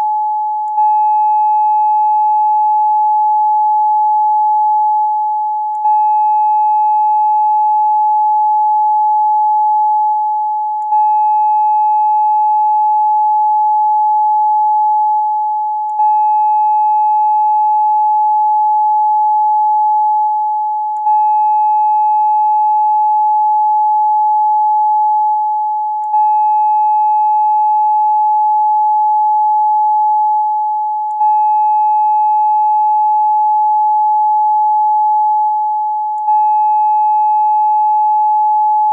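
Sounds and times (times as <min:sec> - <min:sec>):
electronic sine tone: 0:00.0 - 0:38.9.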